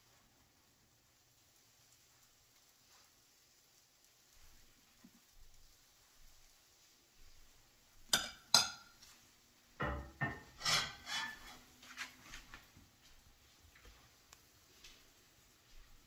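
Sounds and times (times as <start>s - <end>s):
pan and utensils clattering: 8.0s - 9.2s, 9.8s - 12.7s
pan knocking and scraping on grate: 8.1s - 9.0s, 9.8s - 12.4s.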